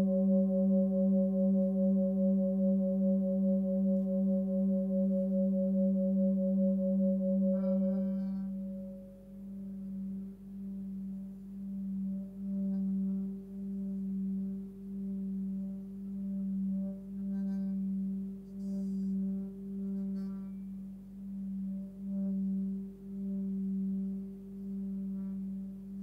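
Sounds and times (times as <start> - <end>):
singing bowl ringing: 0.0 - 26.0.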